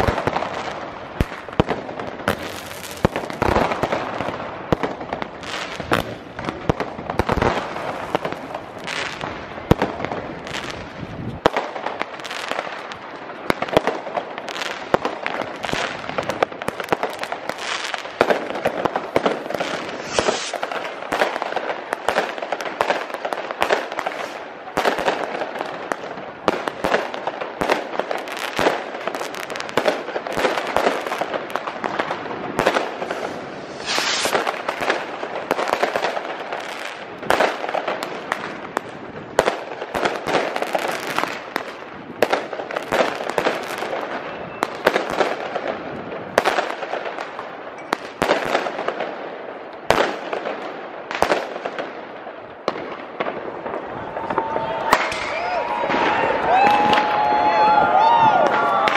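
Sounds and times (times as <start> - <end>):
rockets bursting: 0.0 - 47.1
firework bangs: 0.0 - 58.9
fireworks crackling: 0.0 - 58.9
firework hiss: 19.0 - 21.4, 23.8 - 24.5, 32.6 - 36.0.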